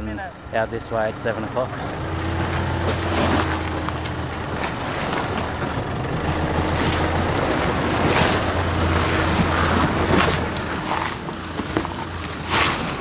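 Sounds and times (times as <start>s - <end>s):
vehicle engine at low revs: 0.0s - 13.0s.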